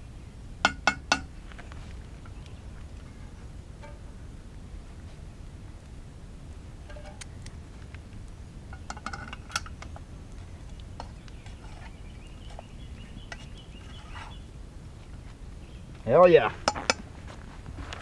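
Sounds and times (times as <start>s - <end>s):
steady low rumble: 1.3s - 18.0s
utensils clinking on cookware: 8.7s - 9.7s.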